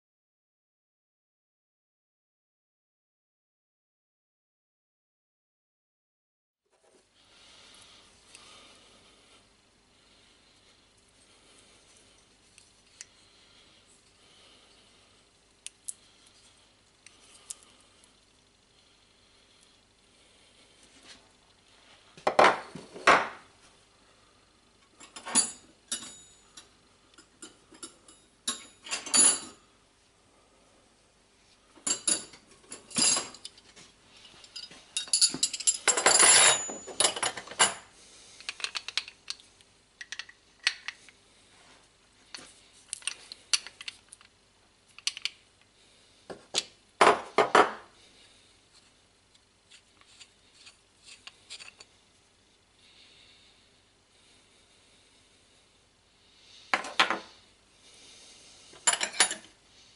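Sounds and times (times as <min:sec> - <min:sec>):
metallic clinks and clatters of tools: 0:25.0 - 0:26.7, 0:27.4 - 0:29.6, 0:31.8 - 0:33.6, 0:34.2 - 0:37.8, 0:58.8 - 0:59.5.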